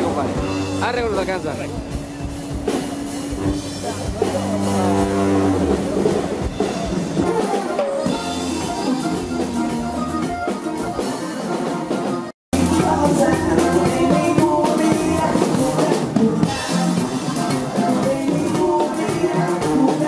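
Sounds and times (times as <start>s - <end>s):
sousaphone bass notes: 0.0s - 7.4s, 8.0s - 11.4s
drum kit steady beat: 0.0s - 20.0s.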